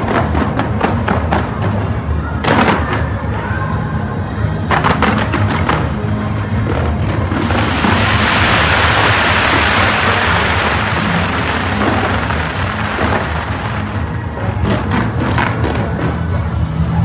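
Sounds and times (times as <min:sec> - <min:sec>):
fireworks crackling: 0:00.0 - 0:17.0
music with low bass: 0:04.0 - 0:17.0.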